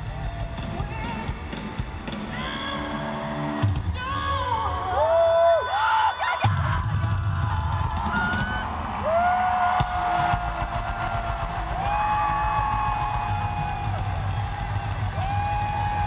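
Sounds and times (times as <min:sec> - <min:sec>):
live pop-rock band music: 0:00.0 - 0:04.6.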